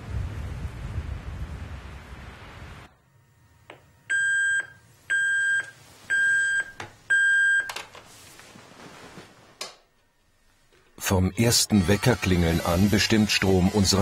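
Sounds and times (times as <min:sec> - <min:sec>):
alarm clock beeping: 0:04.1 - 0:07.7
short rustle: 0:07.9 - 0:09.6.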